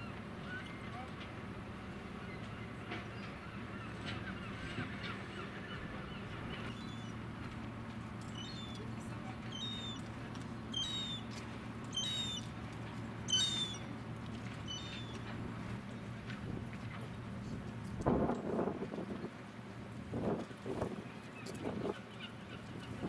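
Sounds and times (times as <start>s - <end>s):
engine idling hum: 0.0s - 23.0s
bird calling: 3.2s - 7.2s, 8.3s - 12.6s, 13.2s - 13.9s, 14.6s - 15.2s.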